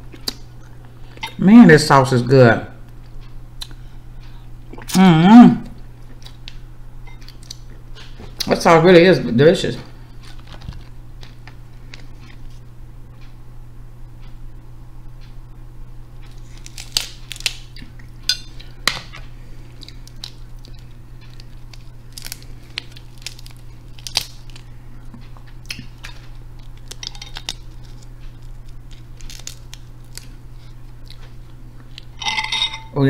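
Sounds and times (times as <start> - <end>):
steady low hum: 0.0 - 33.0
crab shell cracking: 16.3 - 18.0, 18.6 - 24.7, 25.5 - 30.5.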